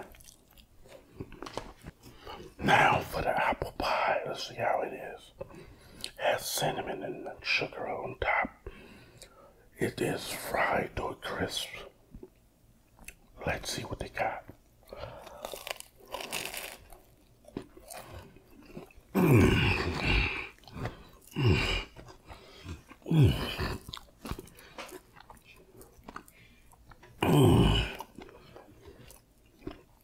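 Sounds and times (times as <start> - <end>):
man chewing food: 0.0 - 2.6, 12.0 - 13.4, 14.5 - 30.0
man moaning mmm: 19.1 - 20.6, 21.3 - 22.0, 23.0 - 23.9, 27.2 - 28.1.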